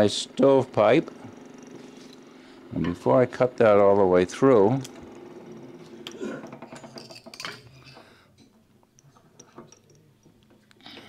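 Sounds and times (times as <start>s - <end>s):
light metallic clinks: 8.9s - 10.5s.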